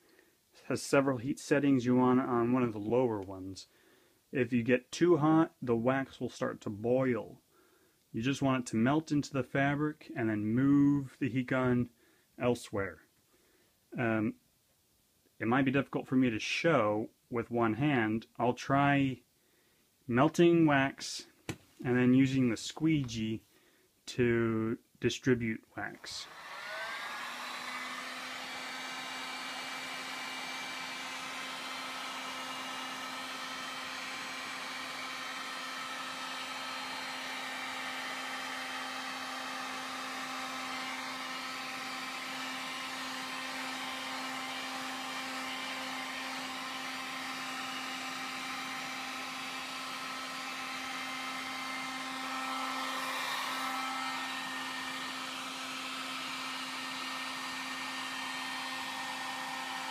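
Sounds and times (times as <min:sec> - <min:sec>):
heat gun fan humming and hissing: 0:26.0 - 0:59.9.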